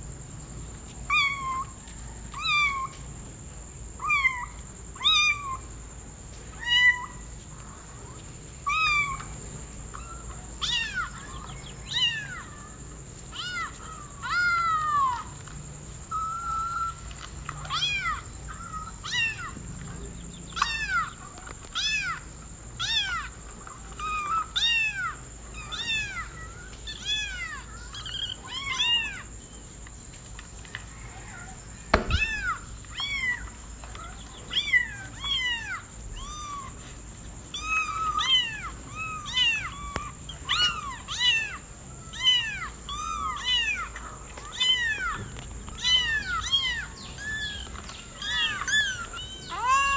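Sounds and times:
sharp knock: 31.9s - 32.5s
kitten meowing: 32.0s - 33.4s, 44.5s - 49.9s.

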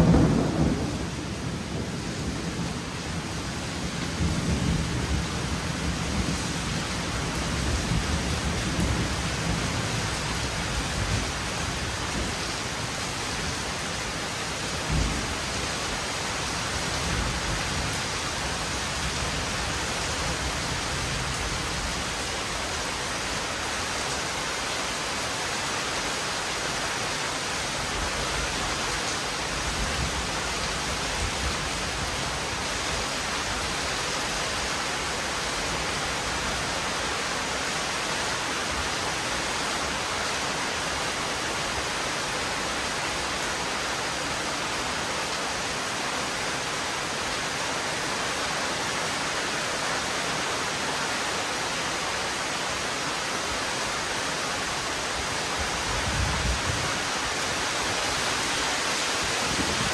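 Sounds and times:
heavy rain: 0.0s - 59.9s.

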